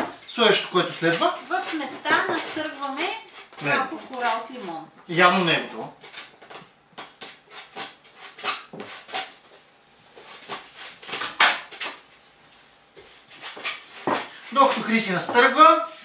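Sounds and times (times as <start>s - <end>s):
peel scraping on a grater: 0.4s - 9.4s, 13.1s - 16.0s.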